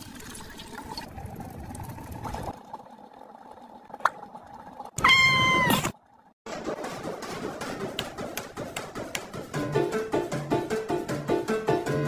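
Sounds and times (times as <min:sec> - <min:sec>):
cat meowing: 0:05.0 - 0:05.8.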